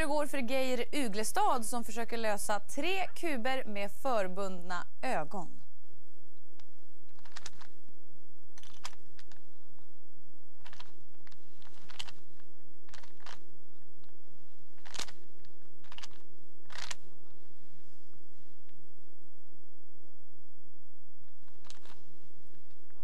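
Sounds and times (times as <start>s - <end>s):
steady hum: 0.0s - 23.0s
plastic puzzle cube clicks: 7.1s - 7.7s, 8.6s - 9.4s, 10.6s - 12.2s, 12.9s - 13.4s, 14.8s - 15.2s, 15.8s - 17.0s, 21.6s - 22.0s.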